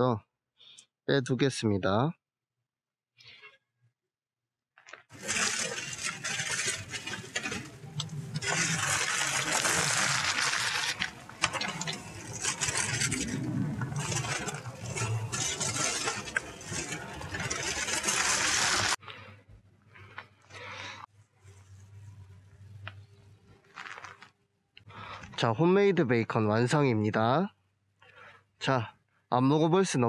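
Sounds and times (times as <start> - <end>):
aluminium foil crinkling: 5.1 - 19.0, 23.6 - 24.4.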